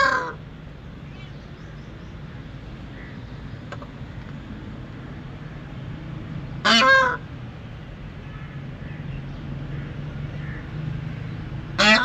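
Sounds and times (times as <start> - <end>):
peafowl call: 0.0 - 0.4, 6.7 - 7.2, 9.7 - 12.0.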